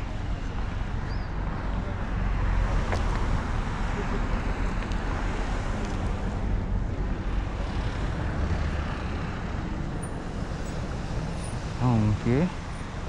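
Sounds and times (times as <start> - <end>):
cars driving past: 0.0 - 13.0.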